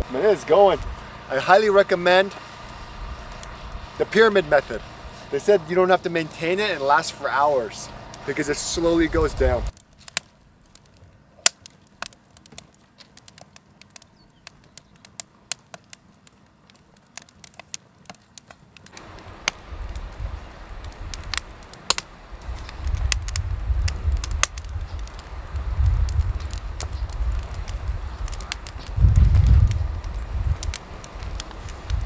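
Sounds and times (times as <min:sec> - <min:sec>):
low rumble: 0:00.0 - 0:02.0, 0:07.8 - 0:09.7, 0:19.1 - 0:32.0
campfire crackling and popping: 0:00.0 - 0:32.0.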